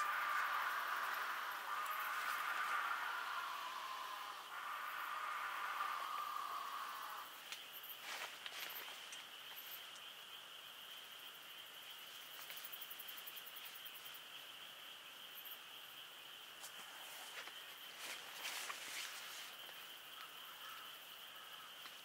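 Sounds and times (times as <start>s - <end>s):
night insects chirring: 0.0s - 22.0s
tent rustling and clicks: 16.6s - 19.8s.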